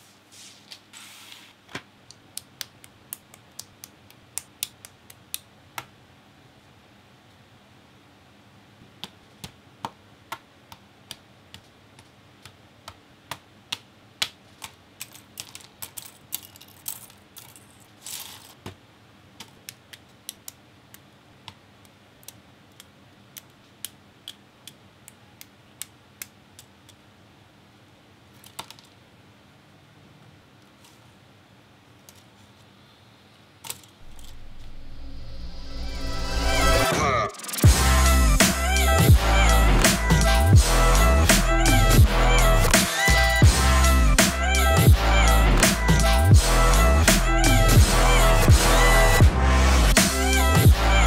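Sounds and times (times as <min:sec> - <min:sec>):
plastic parts clicking: 0:14.6 - 0:18.6.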